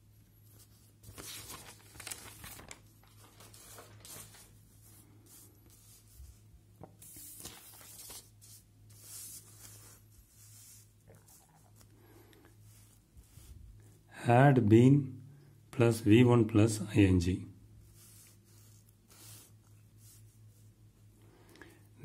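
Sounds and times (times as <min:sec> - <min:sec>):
paper sheets rustling: 0:00.5 - 0:11.9.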